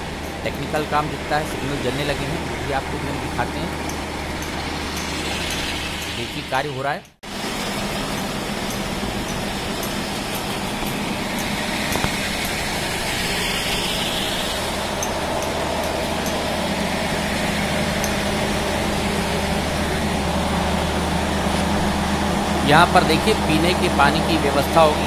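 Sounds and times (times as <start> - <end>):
low motor hum: 0.0 - 6.6, 7.3 - 25.0
floor-grinding machine grinding: 7.3 - 25.0.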